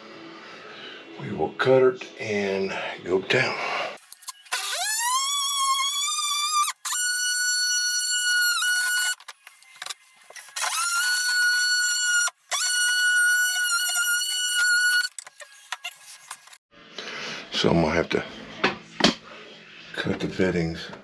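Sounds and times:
oscillating multi-tool whining: 4.0 - 16.1.

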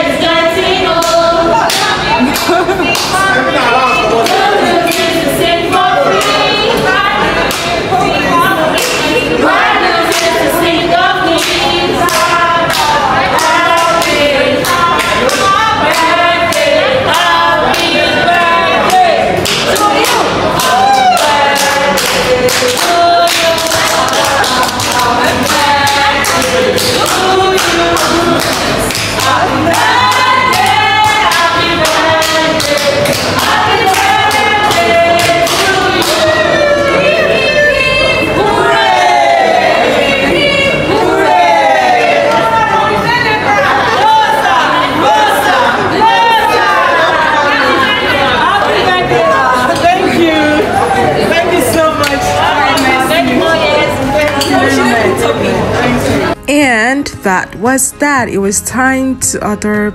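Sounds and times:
group singing: 0.0 - 56.7
hand claps: 1.0 - 3.2, 4.2 - 5.1, 18.9 - 36.4.

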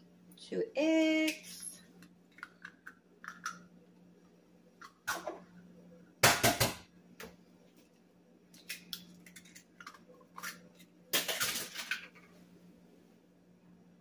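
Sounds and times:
eggs cracking against a ceramic bowl: 2.0 - 3.7.

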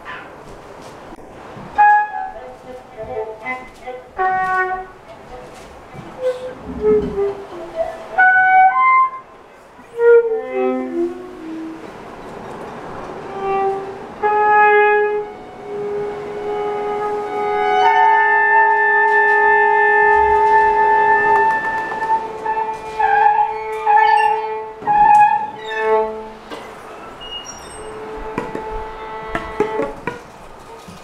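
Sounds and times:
violin: 1.2 - 31.0
flute: 1.8 - 11.9, 13.3 - 26.4
clarinet: 1.8 - 12.1, 13.1 - 31.0.

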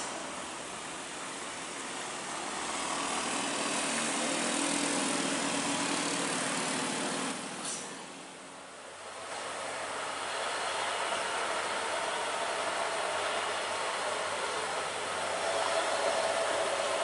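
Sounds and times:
small motorbike engines: 2.4 - 8.1.

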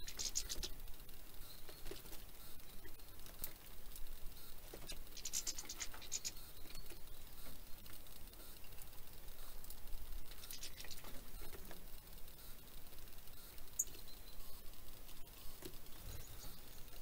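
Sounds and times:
high twittering bird chirps: 0.0 - 3.1, 4.4 - 9.6, 10.2 - 11.6, 13.3 - 17.0
birds tapping and scratching: 0.0 - 17.0.

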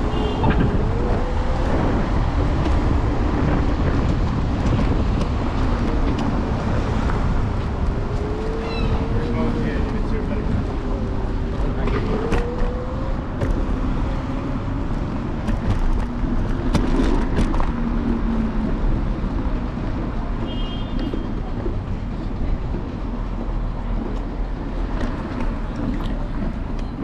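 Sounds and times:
scooter wheels and wind rumble: 0.0 - 27.0.

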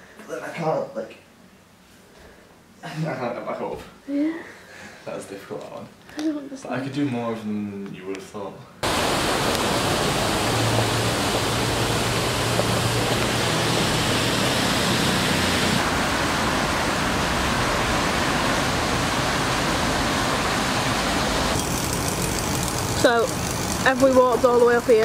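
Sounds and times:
loud outdoor rushing noise: 8.8 - 23.2.

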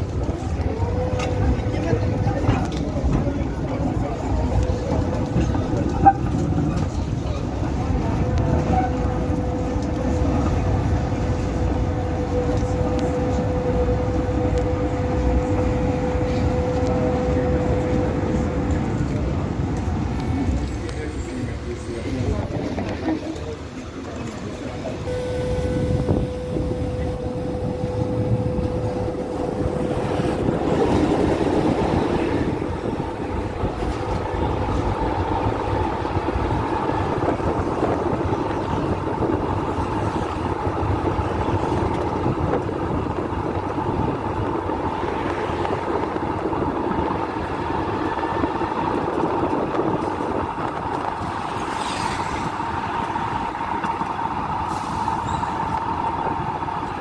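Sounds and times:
tram wheels rumbling on rails: 0.0 - 57.0
steady higher hum: 25.1 - 31.2.

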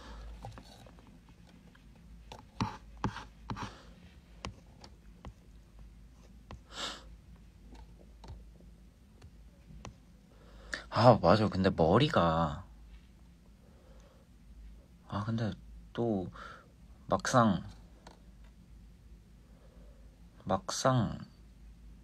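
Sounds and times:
faint clicks and taps: 4.4 - 6.7, 7.3 - 10.1.

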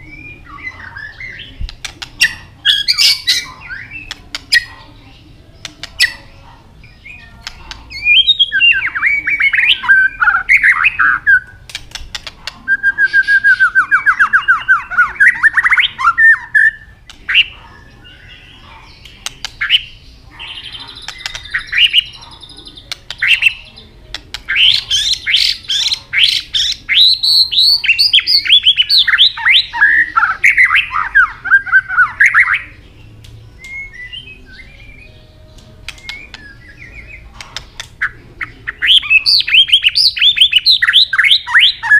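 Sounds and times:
bird singing whistled notes: 7.9 - 11.6, 12.7 - 16.9, 24.5 - 41.9
sharp clicks: 11.7 - 12.6, 35.6 - 36.5, 37.4 - 38.0.

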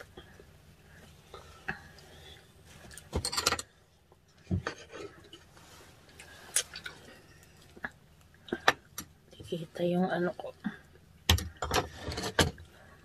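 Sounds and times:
dishes and utensils clattering: 3.0 - 3.8, 11.3 - 12.7.

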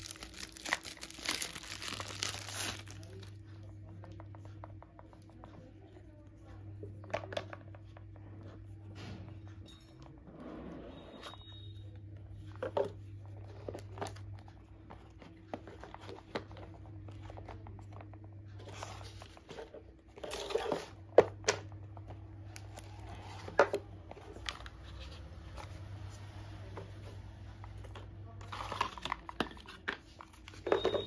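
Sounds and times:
cardboard packaging rustling: 0.0 - 3.3.

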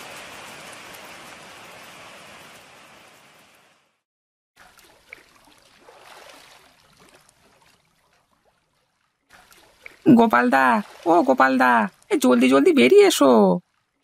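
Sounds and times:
steady rain: 0.0 - 4.0
water lapping and splashing: 0.0 - 4.0, 4.6 - 14.0
sharp water splash: 4.6 - 12.1.

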